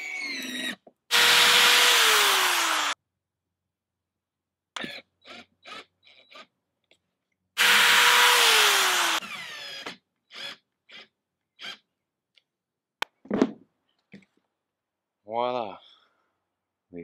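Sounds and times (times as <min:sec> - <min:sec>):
electric drill drilling into wood: 0:00.0 - 0:03.0, 0:04.8 - 0:06.5, 0:07.6 - 0:11.8.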